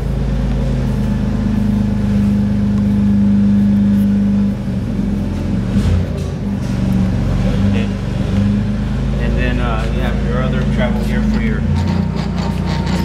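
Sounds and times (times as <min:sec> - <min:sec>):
electric motor humming: 0:06.6 - 0:13.0.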